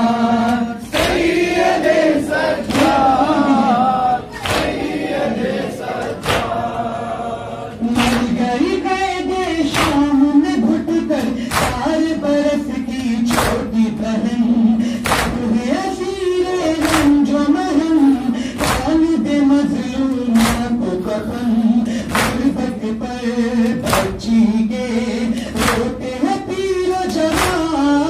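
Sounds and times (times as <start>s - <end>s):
crowd of men chanting: 0.0s - 19.0s.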